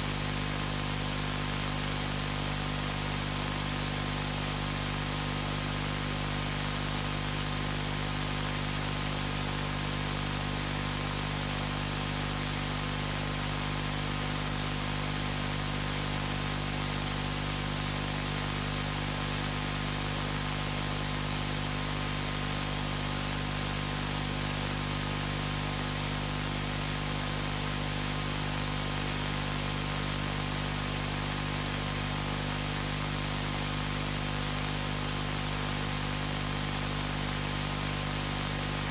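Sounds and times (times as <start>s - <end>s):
static-like hiss: 19.8s - 24.3s
low electrical hum: 20.1s - 24.1s.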